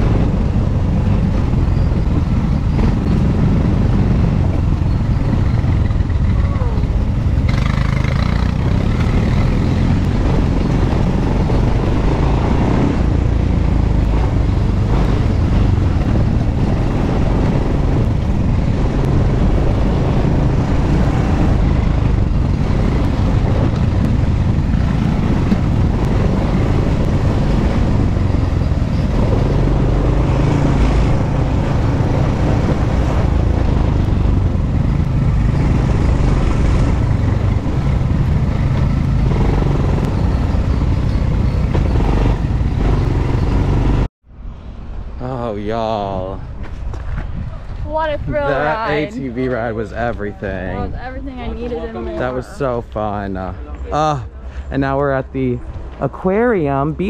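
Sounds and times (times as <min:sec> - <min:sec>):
quad bike engine running: 0:01.1 - 0:44.1.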